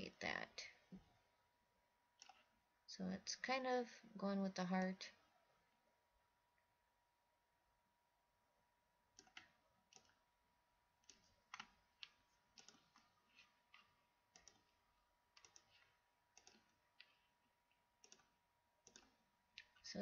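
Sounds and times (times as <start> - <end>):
computer mouse clicking: 2.2 - 2.5, 9.1 - 10.2, 11.0 - 20.0.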